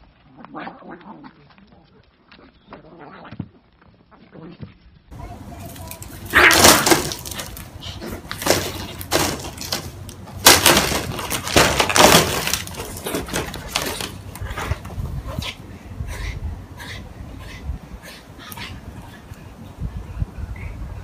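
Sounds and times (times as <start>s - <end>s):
cats hissing: 6.0s - 9.4s.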